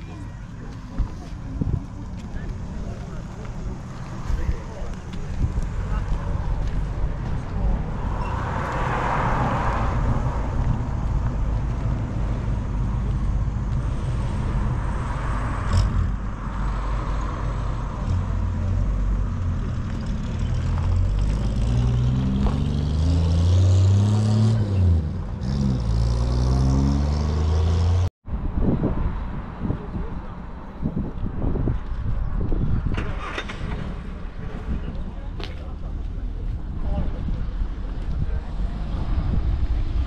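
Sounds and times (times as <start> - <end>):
car engine revving: 15.2 - 28.1.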